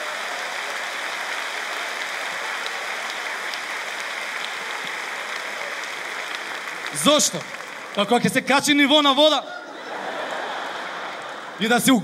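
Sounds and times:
audience applauding: 0.0 - 9.2, 9.8 - 12.0
audience laughing: 9.4 - 12.0.

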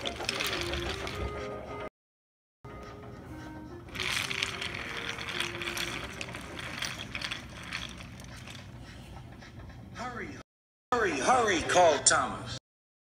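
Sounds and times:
toy train motor whirring: 0.0 - 1.5, 3.9 - 9.2
wheels clattering over track joints: 0.0 - 1.6, 3.9 - 9.8.

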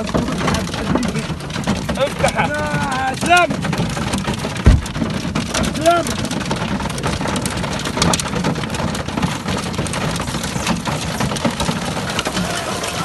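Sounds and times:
hail pelting a vehicle roof: 0.0 - 13.0.

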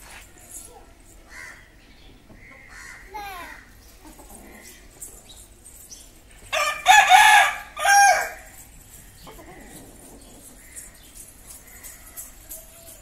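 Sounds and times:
rooster crowing: 6.6 - 8.5.

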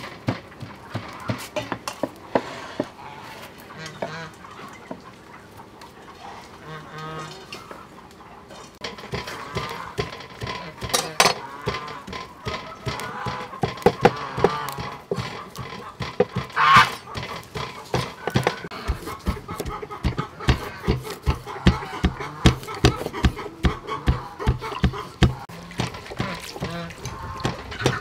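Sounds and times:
fowl calling: 2.3 - 28.0
metal bowls clattering: 8.7 - 28.0
mortar and pestle knocking: 16.0 - 26.8.

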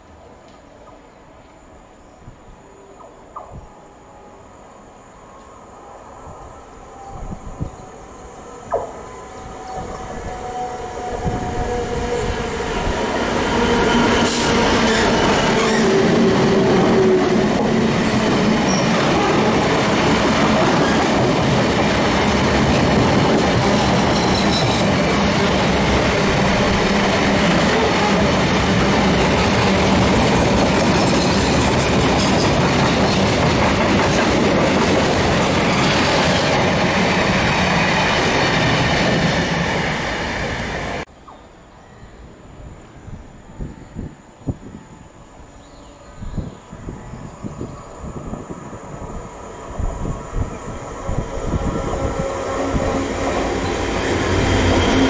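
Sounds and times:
diesel locomotive engine passing: 5.1 - 41.1, 46.8 - 55.0
wagons rumbling over rails: 8.6 - 41.1.

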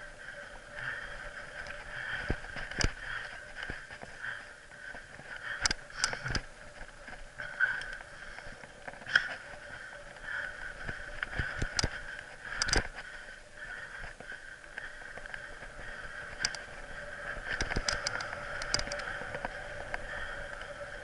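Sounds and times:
wind and tyre noise: 0.0 - 21.0.

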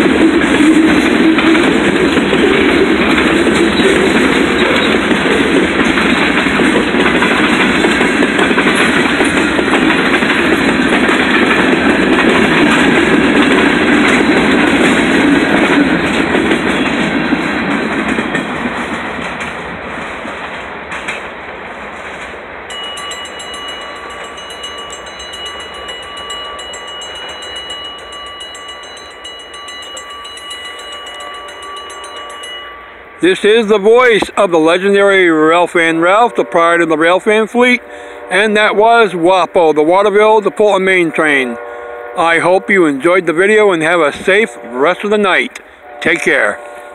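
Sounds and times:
crossing warning bell ringing: 0.0 - 18.7, 22.7 - 46.9
train wheels clattering over rails: 0.0 - 32.6.

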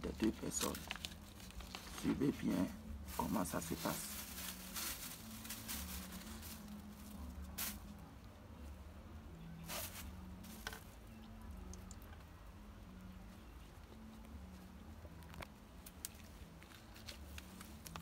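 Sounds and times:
paper rustling and crinkling: 0.0 - 8.0, 15.2 - 18.0
faint low hum: 0.0 - 18.0.

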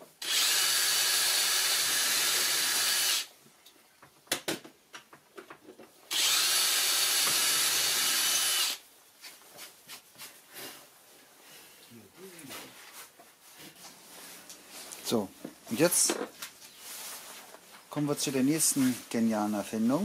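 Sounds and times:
cordless drill into wood: 0.2 - 3.3, 6.1 - 8.8.

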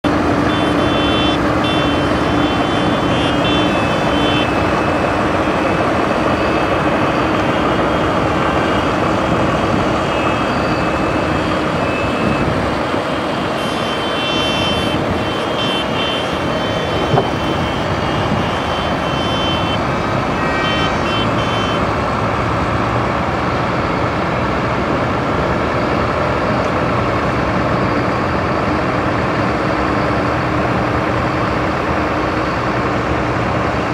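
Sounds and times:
tractor diesel engines running: 0.0 - 33.9
high-pitched beeping: 0.4 - 9.0, 13.3 - 19.8.

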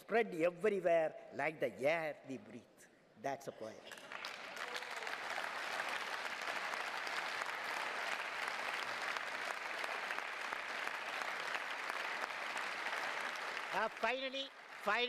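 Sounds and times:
audience applause: 3.9 - 15.0.

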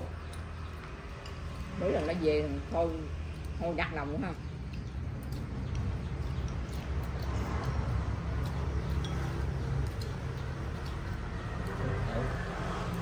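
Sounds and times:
chopsticks clicking on porcelain bowls: 4.4 - 13.0.

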